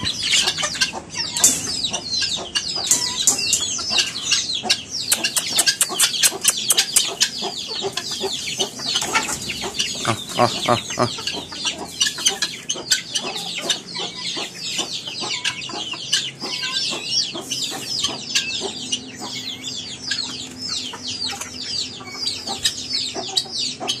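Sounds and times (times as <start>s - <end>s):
chicks peeping: 0.0s - 24.0s
hens calling: 0.0s - 24.0s
sharp clicks: 5.1s - 7.1s.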